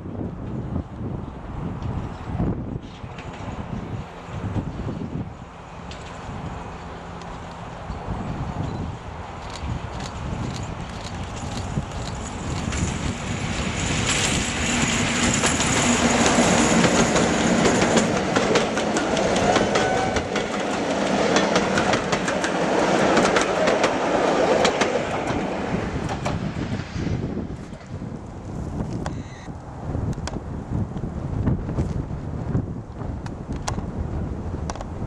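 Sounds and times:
diesel locomotive engine: 0:00.1 - 0:31.6
train wheels clattering over rail joints: 0:09.5 - 0:26.4.

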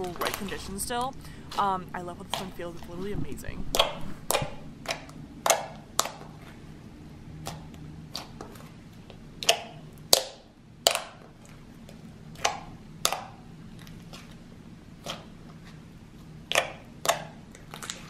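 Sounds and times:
slime popping and clicking: 0:09.4 - 0:11.2.

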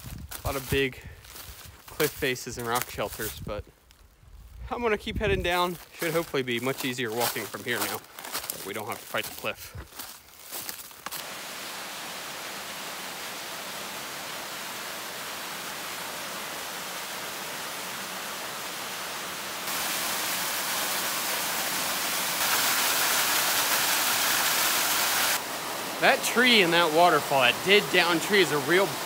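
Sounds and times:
waterfall splashing into pool: 0:11.0 - 0:29.0.

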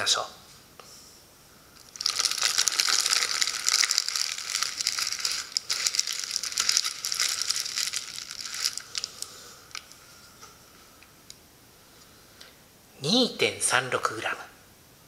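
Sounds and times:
paper balloon crackling: 0:01.9 - 0:10.0.

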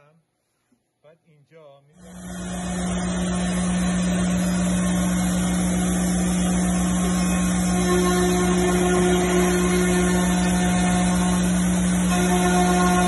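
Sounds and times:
cnc router running: 0:02.0 - 0:13.0
high steady tone: 0:02.6 - 0:13.0.

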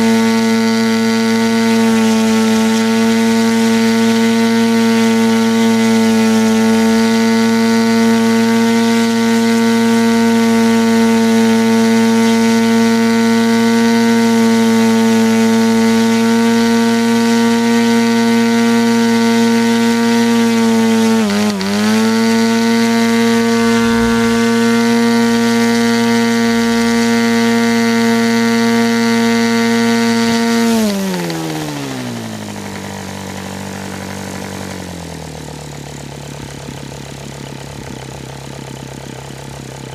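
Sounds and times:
model engine buzzing: 0:17.6 - 0:32.2.

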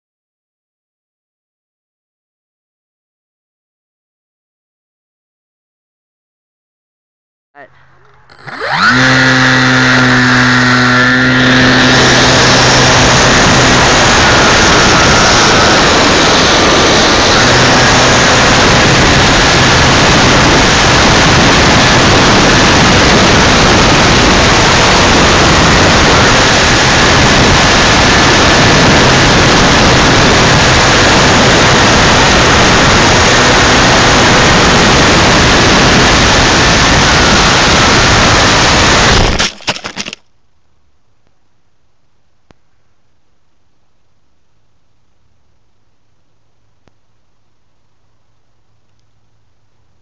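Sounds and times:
faint motor whine: 0:07.8 - 0:39.4
wind rush: 0:08.7 - 0:39.4.

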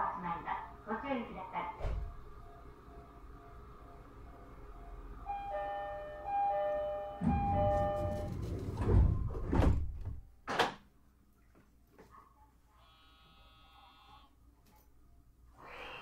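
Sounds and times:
train door chime tune: 0:02.4 - 0:09.4
heavy door thuds: 0:07.2 - 0:10.2
sliding doors closing rushing: 0:07.2 - 0:10.2.

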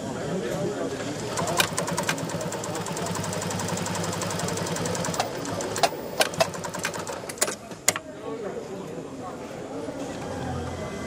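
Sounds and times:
sewing machine running: 0:01.1 - 0:07.5.

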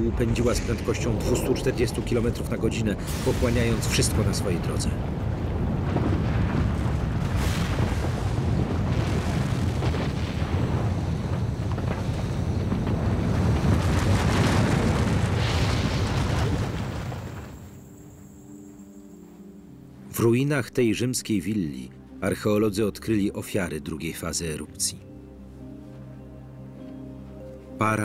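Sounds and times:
low rumbling: 0:00.0 - 0:18.4
rushing noise: 0:00.0 - 0:19.2.

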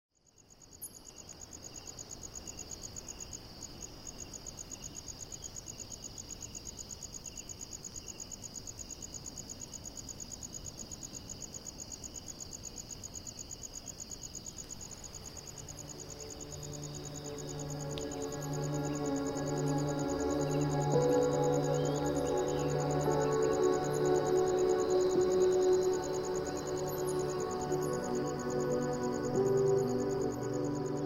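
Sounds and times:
crickets chirping: 0:00.2 - 0:31.0
low insect trill: 0:04.2 - 0:31.0.

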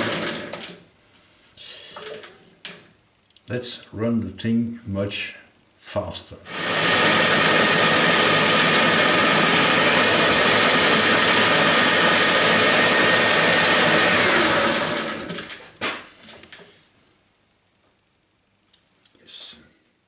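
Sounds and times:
metal lathe whirring: 0:00.0 - 0:00.7, 0:06.5 - 0:15.6.

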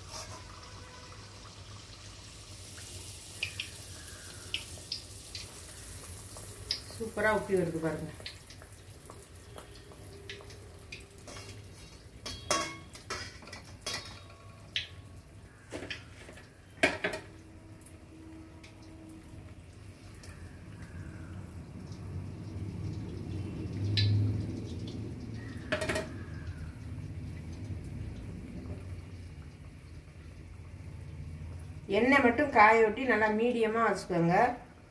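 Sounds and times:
metal utensil clinking on pan: 0:11.3 - 0:14.5.

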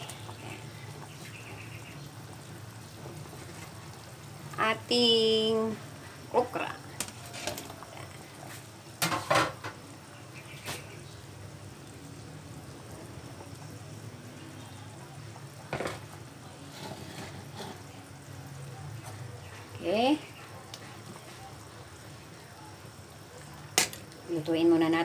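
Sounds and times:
soup boiling in a pot: 0:00.0 - 0:25.0
knocks against a pot: 0:09.0 - 0:09.8, 0:15.7 - 0:16.0.

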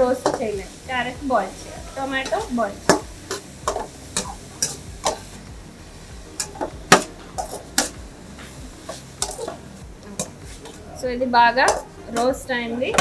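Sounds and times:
metal spatula scraping a pan: 0:01.4 - 0:05.4, 0:06.4 - 0:10.8.

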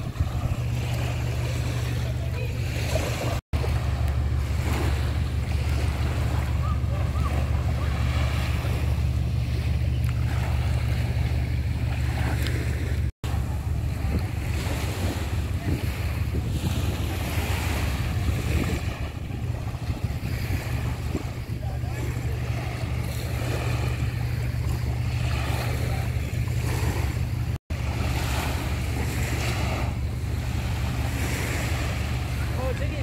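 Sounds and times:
small waves lapping on sand: 0:00.0 - 0:33.0
wind buffeting microphone: 0:00.0 - 0:33.0.

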